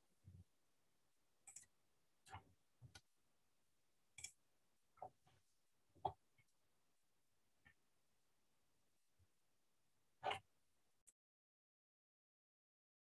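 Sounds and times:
faint clicks and taps: 0:01.4 - 0:03.2.

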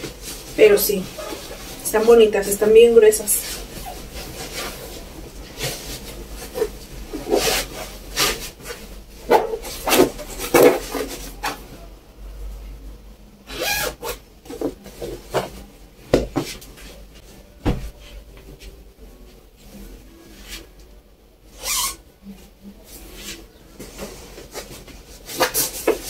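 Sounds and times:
fabric rustling and rubbing: 0:00.0 - 0:11.7.

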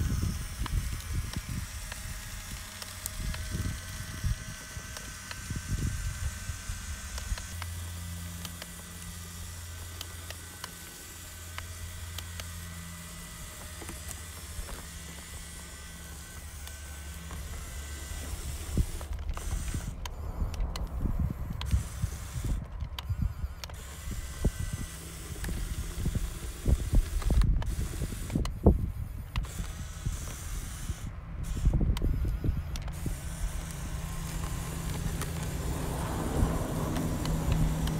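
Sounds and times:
electric motor and gearbox whirring: 0:00.0 - 0:37.9
wheels crunching over ice: 0:32.8 - 0:37.9.

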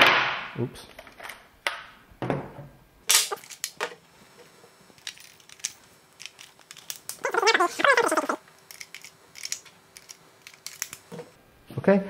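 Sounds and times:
batteries clicking on wooden table: 0:05.0 - 0:07.2.

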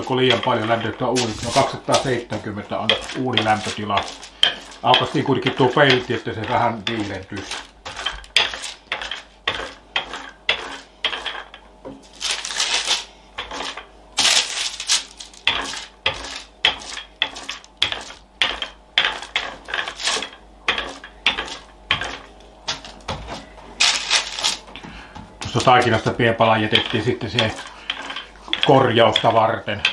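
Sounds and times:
rolling pin rolling dough: 0:00.0 - 0:29.9.

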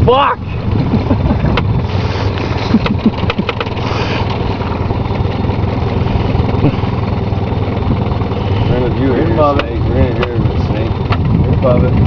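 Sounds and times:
outboard motor running: 0:00.0 - 0:12.0
sharp clicks: 0:03.2 - 0:03.8.

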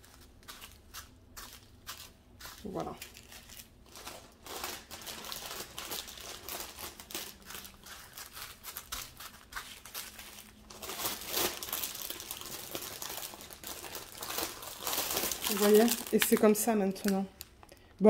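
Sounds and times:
plastic bags crinkling: 0:00.0 - 0:17.8.

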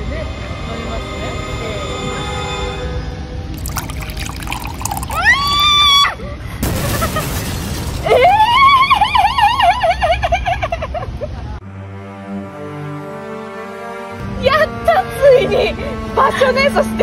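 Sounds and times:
woman shrieking: 0:05.2 - 0:06.2.

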